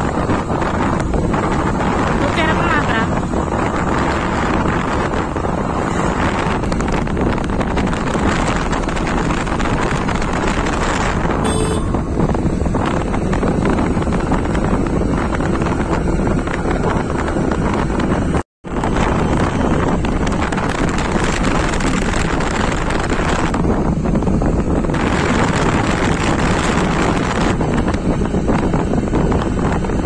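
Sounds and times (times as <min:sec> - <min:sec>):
motorbike engine running: 0:00.0 - 0:18.3
wind buffeting microphone: 0:00.0 - 0:30.0.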